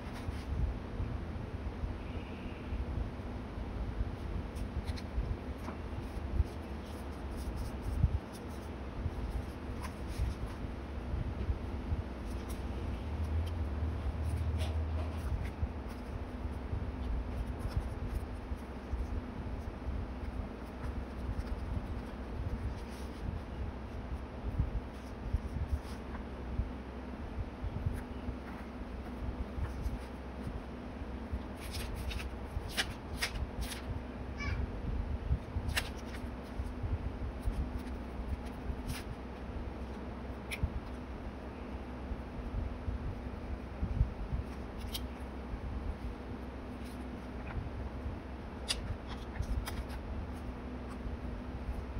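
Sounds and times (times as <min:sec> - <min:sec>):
paper rustling: 0:04.5 - 0:10.7, 0:12.2 - 0:23.5, 0:27.9 - 0:30.6, 0:31.4 - 0:33.9, 0:35.6 - 0:36.8, 0:37.4 - 0:41.0, 0:48.7 - 0:51.0.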